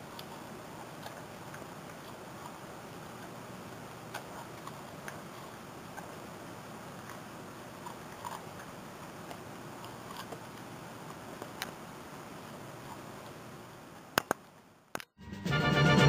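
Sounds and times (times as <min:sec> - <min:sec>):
dog chewing corn: 0:00.0 - 0:13.6
room hiss: 0:00.0 - 0:15.0
sharp clicks: 0:14.1 - 0:15.2.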